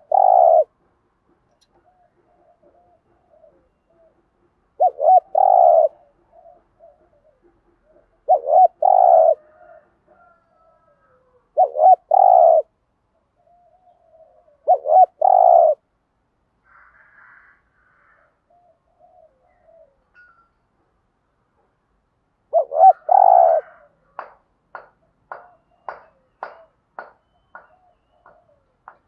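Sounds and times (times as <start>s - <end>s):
dove cooing: 0.0s - 0.8s, 1.7s - 4.2s, 4.8s - 12.8s, 13.4s - 15.8s, 18.2s - 20.1s, 22.5s - 24.1s, 27.5s - 29.0s
faint soft coos: 22.6s - 24.0s.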